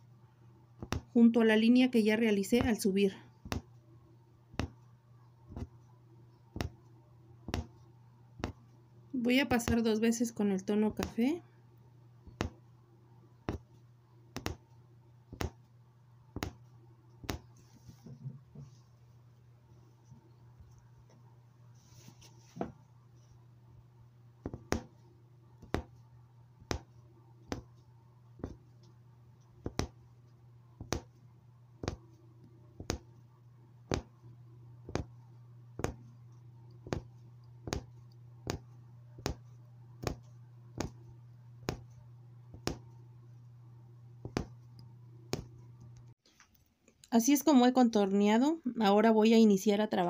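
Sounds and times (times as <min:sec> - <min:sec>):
low hum: 0:00.0 - 0:46.2
needle tapping through fabric: 0:00.8 - 0:01.2, 0:02.4 - 0:03.8, 0:04.5 - 0:04.9, 0:05.5 - 0:08.8, 0:09.4 - 0:11.4, 0:12.2 - 0:12.7, 0:13.4 - 0:18.8, 0:24.4 - 0:31.2, 0:31.8 - 0:43.4, 0:44.2 - 0:46.1.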